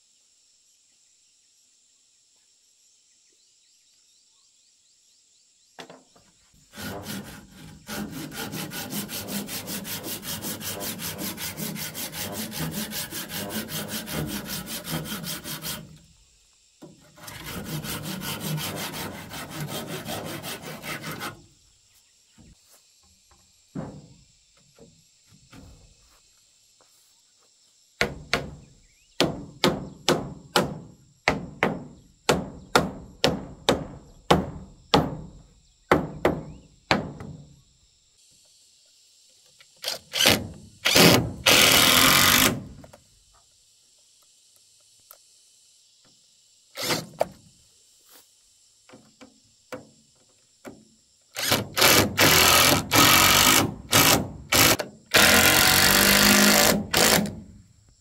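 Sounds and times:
sharp knocks on timber: 0:23.3 - 0:24.2, 0:28.0 - 0:37.5
impact driver running: 0:39.9 - 0:42.7, 0:51.4 - 0:57.4.

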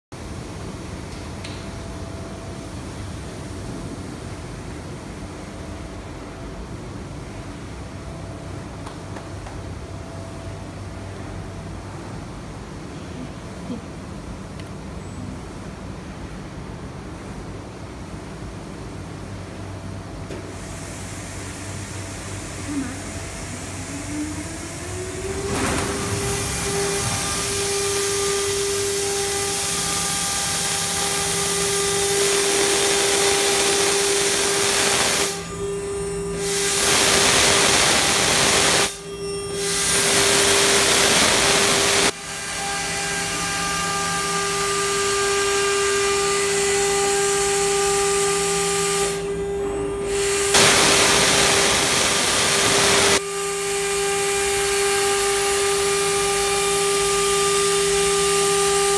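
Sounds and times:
router spindle whining: 0:23.8 - 0:35.6
bit cutting plywood hissing: 0:50.2 - 0:53.2.

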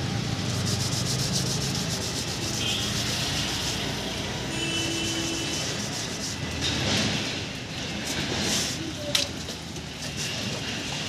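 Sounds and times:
street noise: 0:00.0 - 0:11.0
leaves rustling and rubbing: 0:00.2 - 0:07.2.

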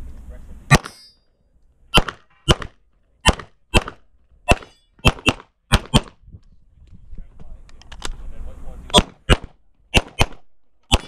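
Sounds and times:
pistol shots: 0:00.7 - 0:01.0, 0:01.9 - 0:06.2, 0:08.9 - 0:11.0.

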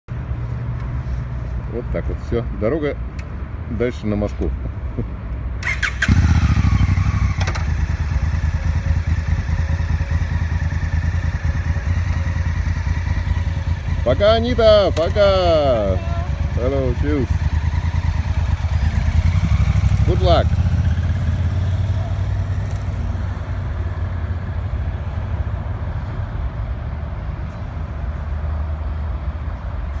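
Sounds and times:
road traffic rumble: 0:00.1 - 0:30.0
bus approaching: 0:05.5 - 0:30.0
motorcycle engine idling: 0:05.6 - 0:23.0.

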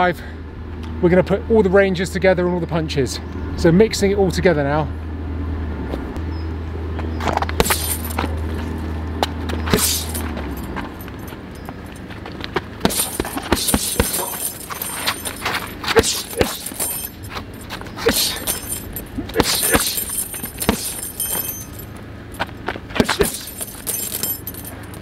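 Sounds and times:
chain jingling: 0:07.6 - 0:08.2, 0:09.8 - 0:12.1, 0:12.8 - 0:25.0
gloves punching heavy bag: 0:07.6 - 0:08.2, 0:09.7 - 0:10.4, 0:12.8 - 0:21.9, 0:23.0 - 0:24.6.

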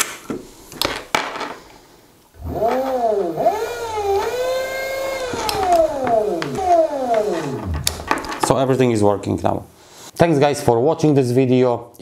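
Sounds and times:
electric motor whine: 0:02.4 - 0:08.1.

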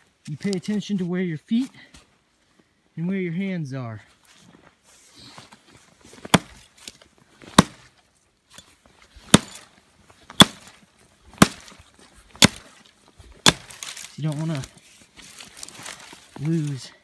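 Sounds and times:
hatchet chopping wood: 0:06.3 - 0:06.6, 0:07.4 - 0:07.9, 0:08.5 - 0:09.7, 0:10.3 - 0:12.7, 0:13.4 - 0:13.9.

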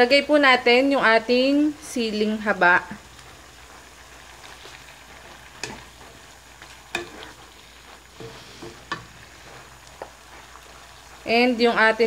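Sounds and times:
food sizzling in a wok: 0:00.0 - 0:12.0
wooden spatula knocking pan: 0:05.6 - 0:06.2, 0:06.9 - 0:07.3, 0:08.2 - 0:09.2.

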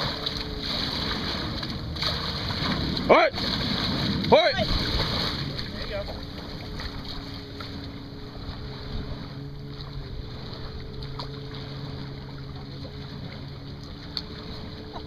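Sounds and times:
wind on microphone: 0:00.0 - 0:07.4
canoe paddle in water: 0:00.0 - 0:15.0
steady low hum: 0:00.0 - 0:15.0.

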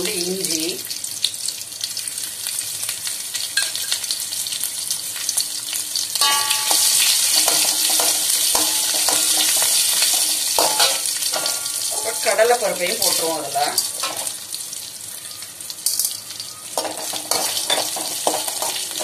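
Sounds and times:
spices sizzling in hot oil: 0:00.0 - 0:19.0
metal ladle scraping a pan: 0:06.2 - 0:13.2, 0:16.8 - 0:19.0.

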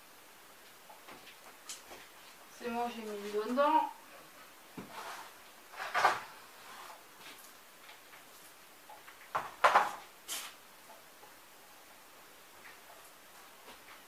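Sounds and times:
cardboard sheets scraping: 0:04.8 - 0:07.0.

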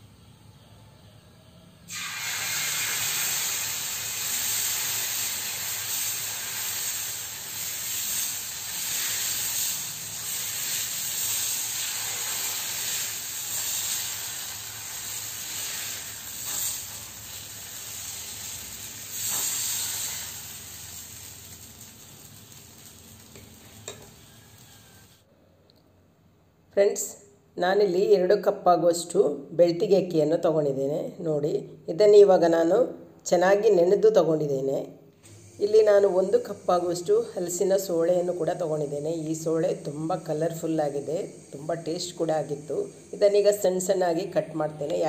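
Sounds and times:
batter sizzling on griddle: 0:01.9 - 0:25.2, 0:35.3 - 0:45.0.

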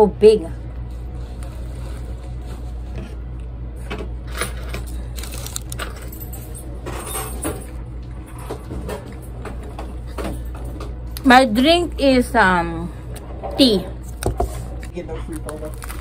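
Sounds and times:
steady low hum: 0:00.0 - 0:16.0
person biting and chewing: 0:05.0 - 0:05.8, 0:14.8 - 0:16.0
crackles and rustles: 0:14.1 - 0:16.0.

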